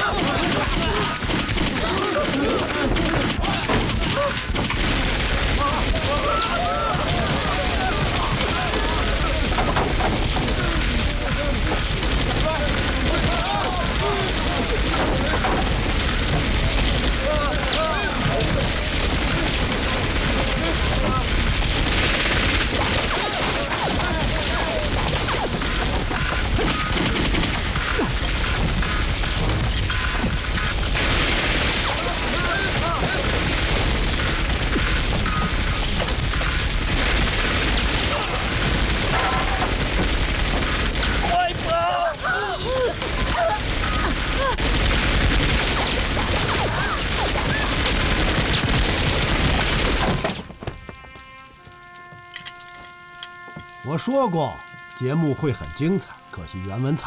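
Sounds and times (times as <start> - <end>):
rapid pistol shots: 0.0 - 50.5
submachine gun fire: 0.0 - 50.5.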